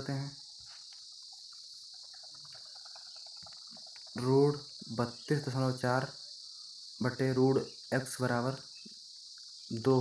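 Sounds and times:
man speaking: 0:00.0 - 0:00.4, 0:04.2 - 0:06.2, 0:07.0 - 0:08.6, 0:09.7 - 0:10.0
high-pitched hiss: 0:00.0 - 0:10.0.

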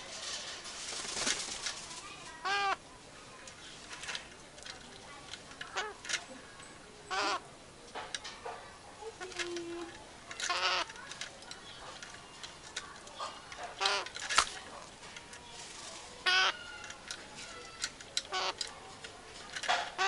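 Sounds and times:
parakeet squawking: 0:02.4 - 0:02.8, 0:05.7 - 0:06.0, 0:07.1 - 0:07.5, 0:10.4 - 0:11.0, 0:13.2 - 0:14.2, 0:16.2 - 0:16.8, 0:18.3 - 0:18.6.

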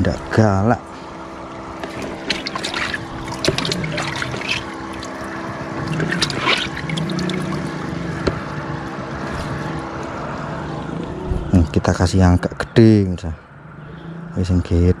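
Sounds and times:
steady low hum: 0:00.0 - 0:15.0
hand splashing in water: 0:02.0 - 0:05.2.

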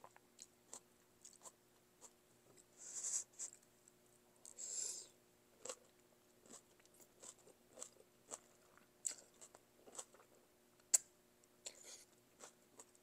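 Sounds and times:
person chewing noodles: 0:00.0 - 0:02.2, 0:04.4 - 0:11.0, 0:11.6 - 0:13.0.

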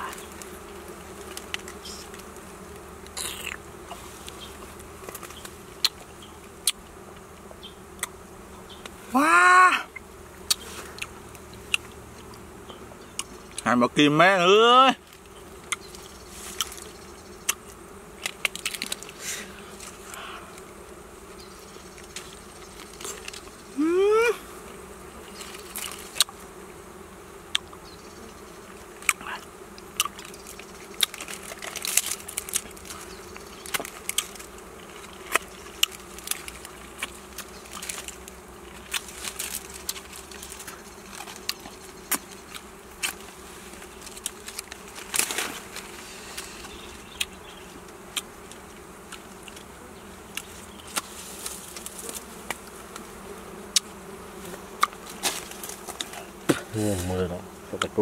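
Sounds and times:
bee buzzing past close: 0:00.0 - 0:58.0
bees buzzing: 0:00.0 - 0:58.0
twigs and leaves snapping: 0:00.1 - 0:06.8, 0:15.0 - 0:20.7, 0:22.0 - 0:23.5, 0:25.3 - 0:26.4, 0:29.8 - 0:49.7, 0:50.3 - 0:53.1, 0:54.5 - 0:57.2.

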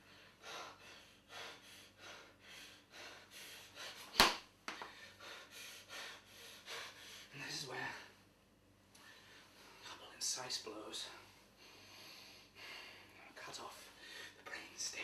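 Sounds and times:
man panting: 0:00.0 - 0:07.4
sharp smack: 0:04.1 - 0:04.9.

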